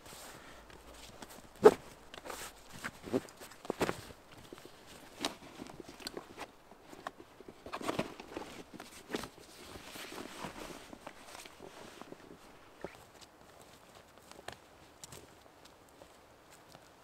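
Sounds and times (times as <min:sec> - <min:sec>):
fabric rustling: 0:00.0 - 0:13.0.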